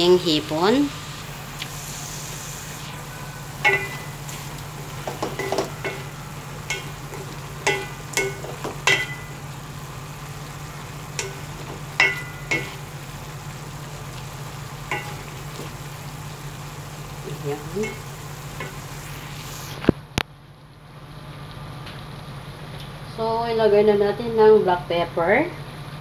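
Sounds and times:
steady low hum: 0:00.0 - 0:26.0
spatula knocking metal pot: 0:03.6 - 0:04.1, 0:05.0 - 0:09.4, 0:11.2 - 0:12.9, 0:14.9 - 0:15.3.

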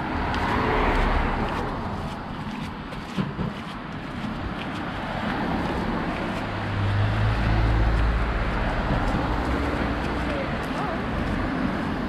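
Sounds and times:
car passing close by: 0:00.0 - 0:02.0, 0:04.8 - 0:12.0.

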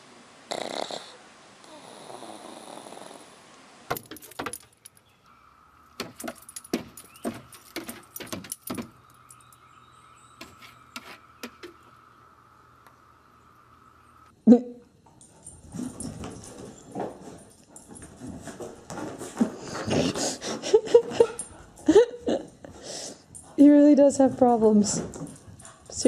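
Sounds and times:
dog snoring: 0:00.5 - 0:03.4
dog claws scratching wooden deck: 0:06.0 - 0:09.0.

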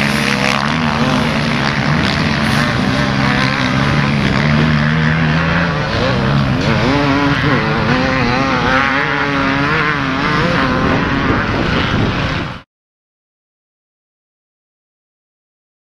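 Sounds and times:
dirt bike engines revving: 0:00.0 - 0:12.6.

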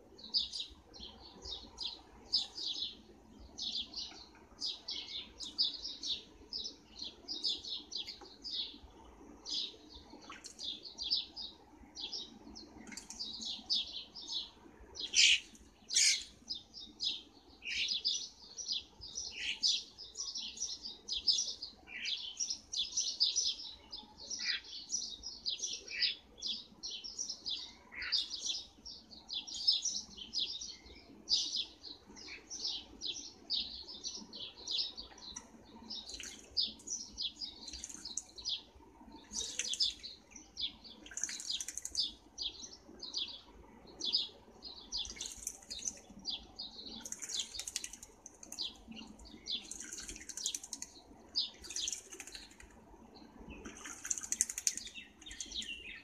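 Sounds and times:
birds chirping: 0:00.1 - 0:56.0.

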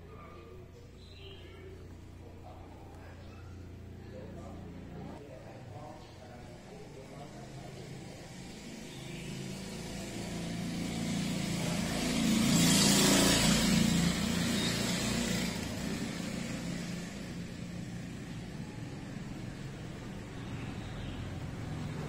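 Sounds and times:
vehicle passing by: 0:05.8 - 0:22.0.

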